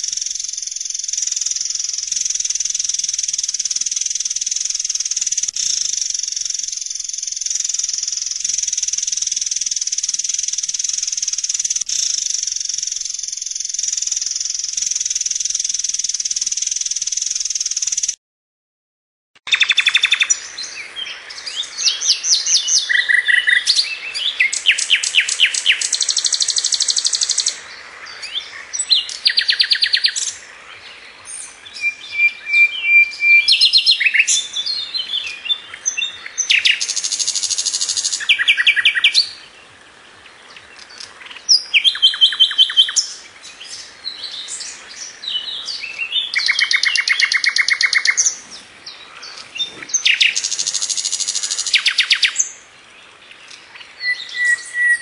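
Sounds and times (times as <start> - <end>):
steady hiss: 0.0 - 18.1, 33.7 - 54.0
songbird trilling: 0.0 - 18.2, 19.5 - 39.6, 40.2 - 55.0.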